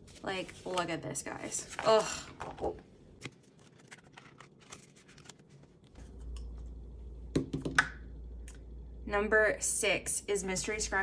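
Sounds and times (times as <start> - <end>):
low steady hum: 0.0 - 11.0
banknotes crinkling: 3.2 - 6.0.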